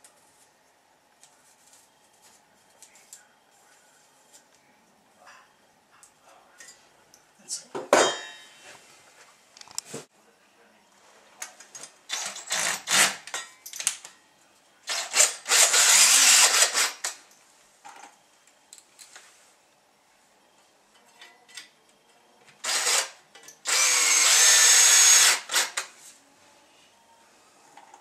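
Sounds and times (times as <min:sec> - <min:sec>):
cordless drill boring into wall: 0:12.1 - 0:13.2, 0:14.9 - 0:17.1, 0:22.6 - 0:25.9.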